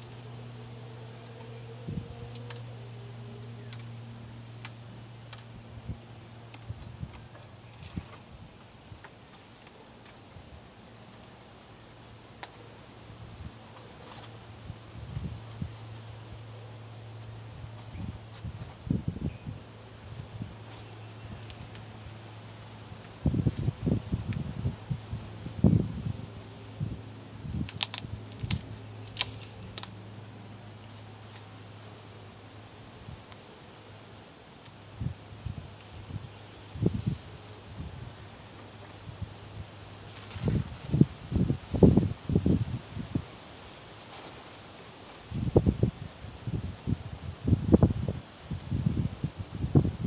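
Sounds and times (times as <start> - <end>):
insects chirring: 0.0 - 50.0
sharp ticks and rustles: 3.6 - 10.4, 27.6 - 32.2, 40.0 - 42.0.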